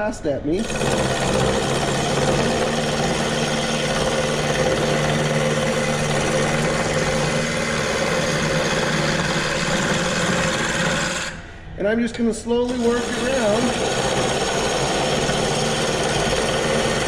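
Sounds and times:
tool rasping on spinning wood: 0.6s - 11.4s, 12.6s - 17.0s
lathe motor humming: 0.6s - 11.5s, 12.6s - 17.0s.

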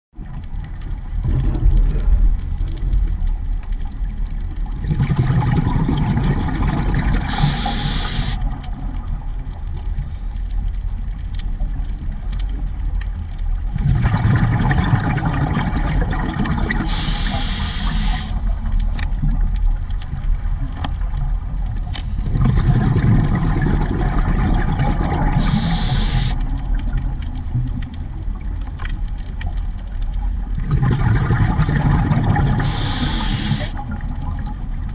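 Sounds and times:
diver breathing through regulator: 7.3s - 8.4s, 16.8s - 18.4s, 25.4s - 26.4s, 32.6s - 33.8s.

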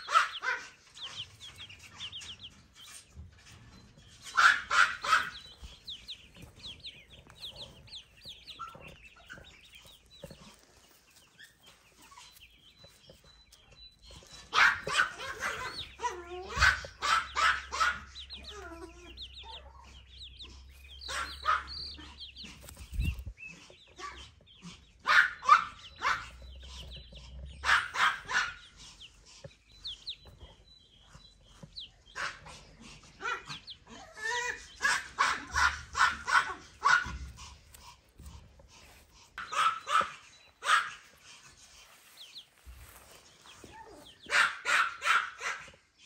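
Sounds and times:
baby chicks peeping: 0.0s - 46.0s
animal yapping calls: 4.2s - 8.9s, 14.4s - 20.2s, 20.9s - 23.0s, 32.2s - 38.3s, 39.4s - 41.1s.

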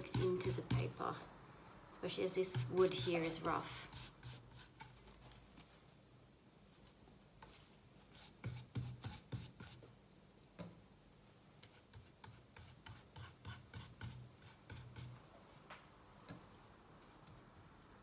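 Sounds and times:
paintbrush rubbing on timber: 2.5s - 4.9s.

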